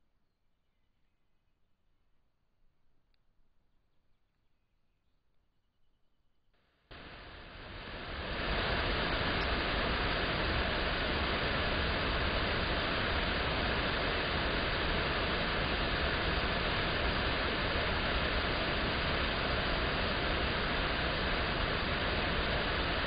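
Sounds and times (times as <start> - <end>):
steady rushing noise: 6.9 - 23.0.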